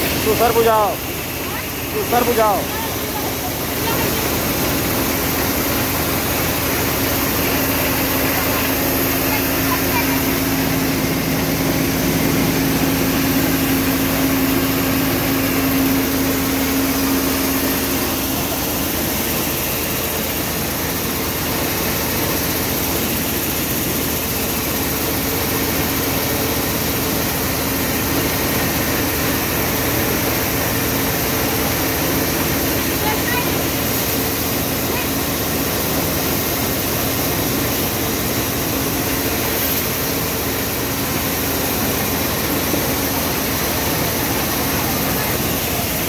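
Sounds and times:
tractor engine running: 0:00.0 - 0:28.5
rice mill running: 0:00.0 - 0:46.0
steady hum: 0:00.0 - 0:46.0.

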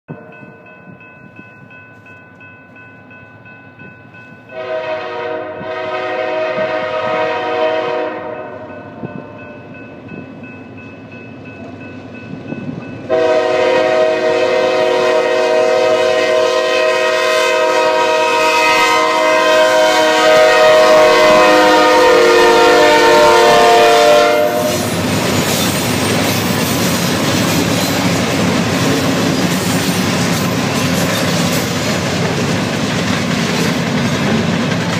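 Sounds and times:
locomotive air horn: 0:04.5 - 0:09.3, 0:13.1 - 0:25.0
locomotive engines and wheels rumbling: 0:05.6 - 0:15.6, 0:19.2 - 0:34.9.

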